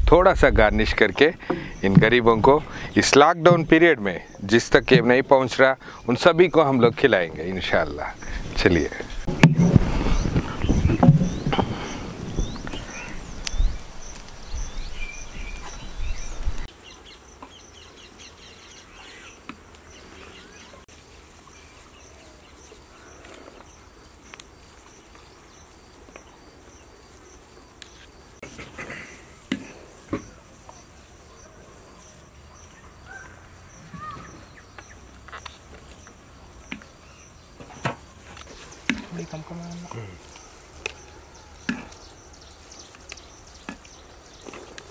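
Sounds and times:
insects chirping: 0:00.7 - 0:44.9
bird chirps: 0:05.8 - 0:20.8, 0:30.0 - 0:44.6
low rumbling and knocks: 0:09.3 - 0:11.8.

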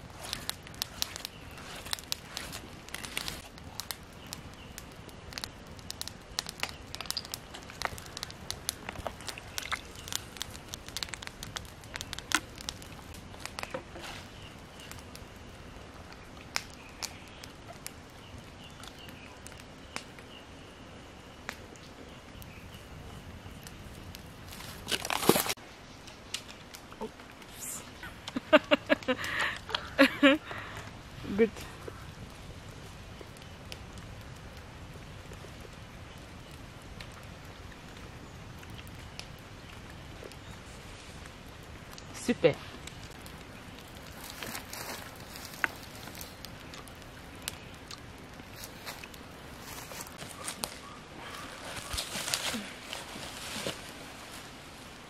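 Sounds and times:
scuffling rustle: 0:24.4 - 0:25.6, 0:44.0 - 0:46.3, 0:48.5 - 0:54.9.

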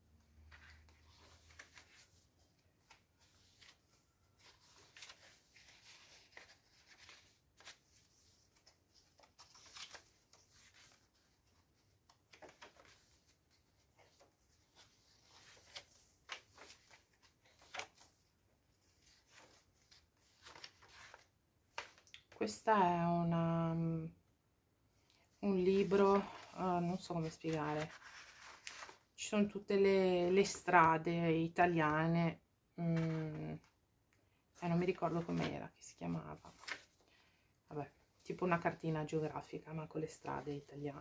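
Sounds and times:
paper pages rustling: 0:00.2 - 0:22.4, 0:25.6 - 0:29.2, 0:32.9 - 0:33.7, 0:34.8 - 0:35.6, 0:36.3 - 0:37.2.

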